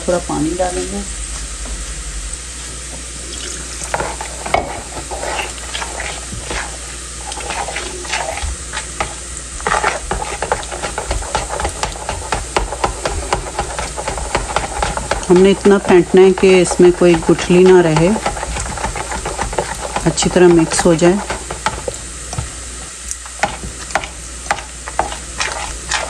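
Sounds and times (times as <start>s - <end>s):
onions sizzling: 0.0s - 26.0s
spoon scraping plastic bowl: 3.9s - 22.0s, 23.5s - 26.0s.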